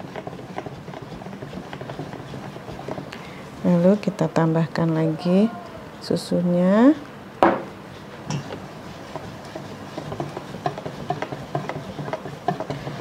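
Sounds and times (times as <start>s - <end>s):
whisk tapping metal bowl: 0.0s - 3.1s, 8.3s - 13.0s.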